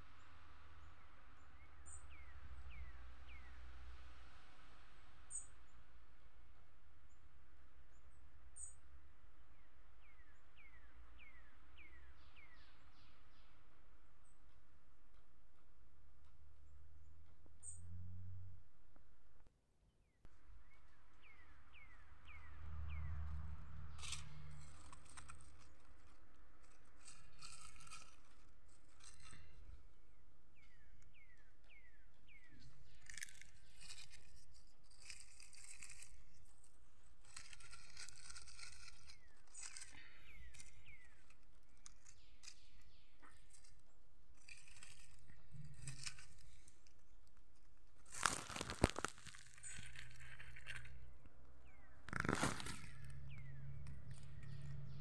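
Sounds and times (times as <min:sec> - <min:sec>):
dry leaves rustling and crackling: 0:22.2 - 0:30.1, 0:32.6 - 0:55.0.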